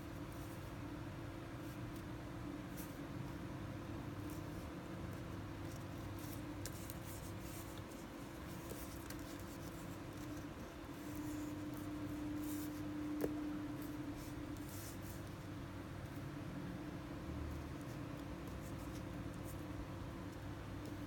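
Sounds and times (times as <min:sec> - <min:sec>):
steady hum: 0:00.0 - 0:21.0
fingertips rustling on paper: 0:04.2 - 0:15.6, 0:17.6 - 0:21.0.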